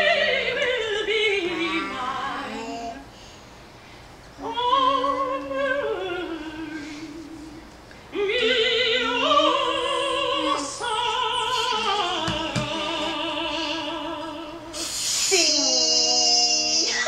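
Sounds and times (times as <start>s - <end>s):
woman singing opera: 0.0s - 3.0s, 4.4s - 16.9s.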